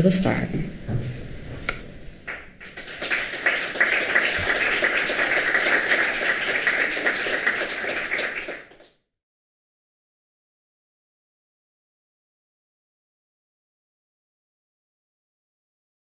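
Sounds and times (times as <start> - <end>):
audience applauding: 2.2 - 9.0.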